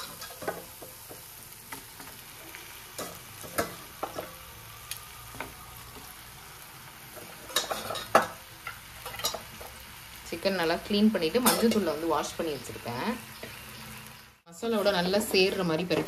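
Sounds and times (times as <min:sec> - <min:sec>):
masala sizzling in a pan: 0:00.0 - 0:16.0.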